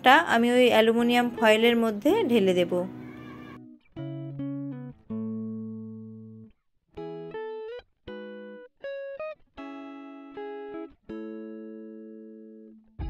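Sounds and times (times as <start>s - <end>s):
plucked guitar melody: 0.0s - 13.0s.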